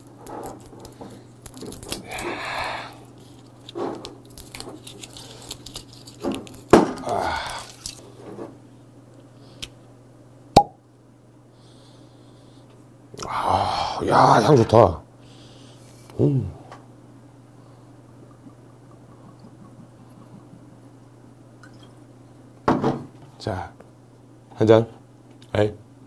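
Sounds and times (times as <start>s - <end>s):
cork popping from bottle: 10.6s - 10.8s.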